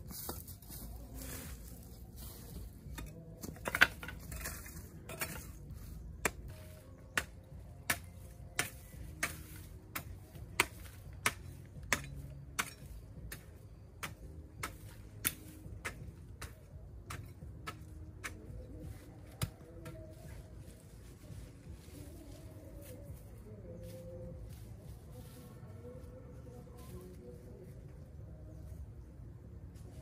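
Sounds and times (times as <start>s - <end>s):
hoe chopping into soil: 6.2s - 18.5s.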